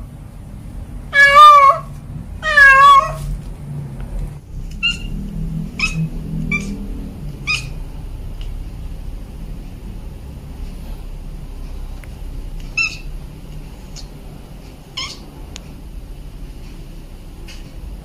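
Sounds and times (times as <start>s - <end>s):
cat meowing loudly: 1.1s - 3.3s.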